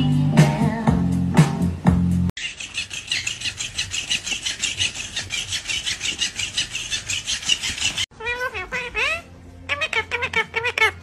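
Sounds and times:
parrot rasping: 2.4 - 11.0
parakeet talking: 6.2 - 11.0.

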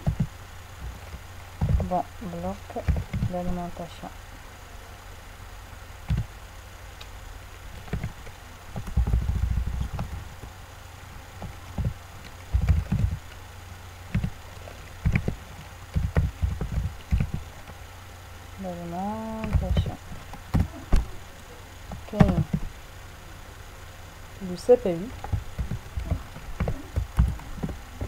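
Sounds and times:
dull thumps and knocks: 0.0 - 2.1, 2.7 - 3.6, 6.0 - 6.3, 7.8 - 10.5, 11.3 - 13.3, 14.1 - 14.4, 15.0 - 17.8, 19.3 - 21.1, 21.9 - 22.7, 25.1 - 28.0
low electrical hum: 0.0 - 28.0.

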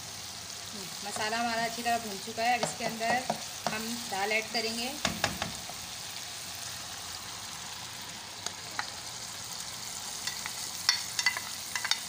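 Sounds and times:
masala sizzling in hot oil: 0.0 - 12.0
spatula clicking and scraping pan: 2.5 - 3.9, 10.2 - 12.0.

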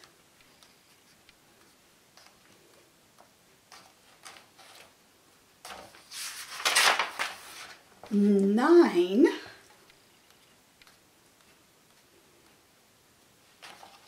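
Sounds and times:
book page turning: 5.7 - 7.8.

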